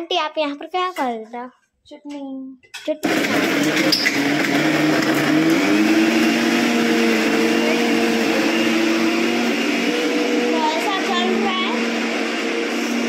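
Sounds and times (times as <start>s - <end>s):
mixer grinder motor whir: 3.0s - 13.0s.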